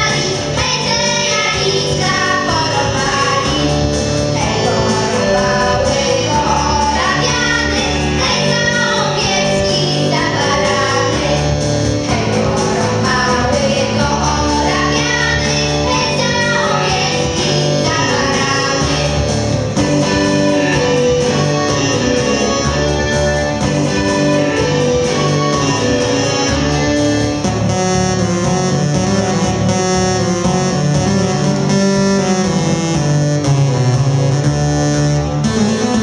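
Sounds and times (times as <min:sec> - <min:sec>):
voices singing together: 0:00.0 - 0:20.1
instrumental folk accompaniment: 0:00.0 - 0:36.0.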